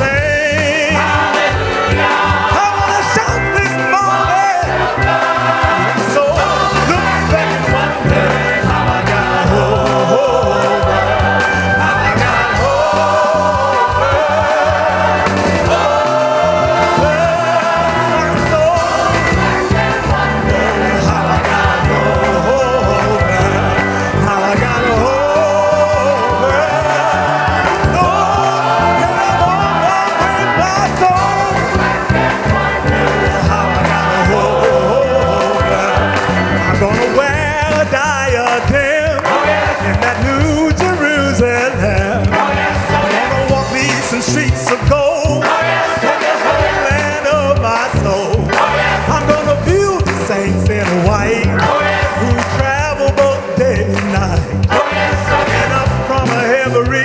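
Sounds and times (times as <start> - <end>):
bass line: 0.0 - 57.0
gospel choir singing: 0.0 - 57.0
hand clapping: 47.8 - 55.6.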